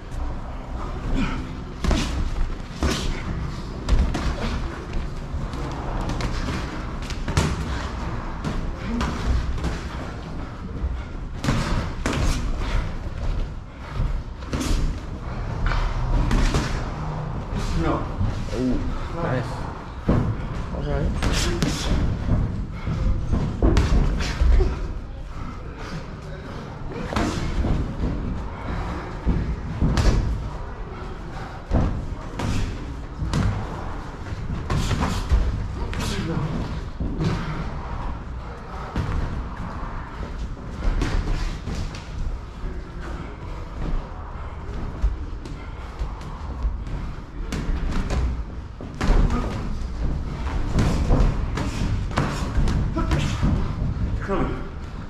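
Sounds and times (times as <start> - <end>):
boxing gloves thudding: 45.8 - 54.2.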